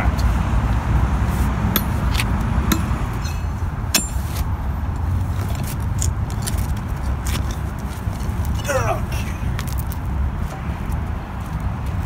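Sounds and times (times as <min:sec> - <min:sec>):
steady low rumble: 0:00.0 - 0:12.0
pickaxe striking asphalt: 0:01.7 - 0:04.5.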